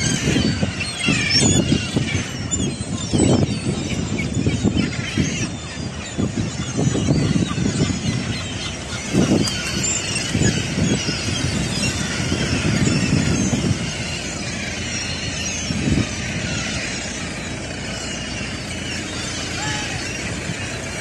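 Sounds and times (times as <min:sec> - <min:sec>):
gulls calling: 0:00.0 - 0:21.0
wind rumbling on microphone: 0:00.0 - 0:21.0.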